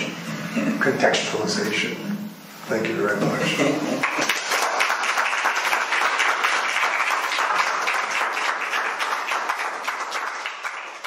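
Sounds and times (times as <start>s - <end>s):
audience applauding: 4.0s - 11.0s.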